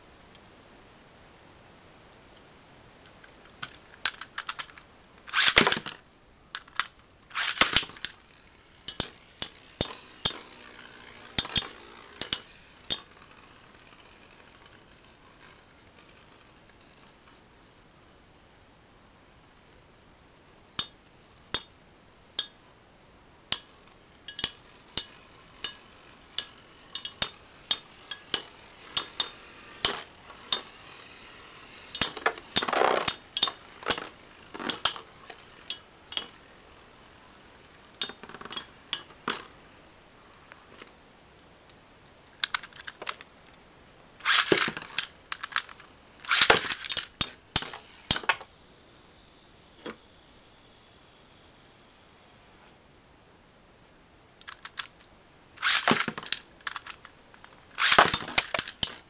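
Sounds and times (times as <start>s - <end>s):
spinning tops clashing: 6.6s - 16.4s, 23.5s - 39.5s, 44.2s - 48.5s.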